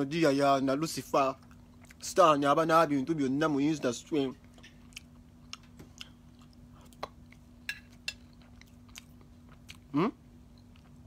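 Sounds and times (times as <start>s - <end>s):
person chewing salad: 1.4s - 2.1s, 4.3s - 11.0s.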